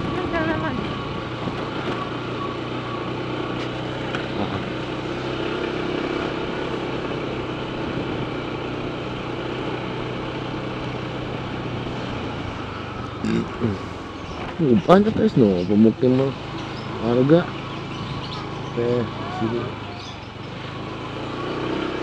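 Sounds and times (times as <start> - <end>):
road noise: 0.0 - 22.0
scooter engine humming: 0.0 - 22.0.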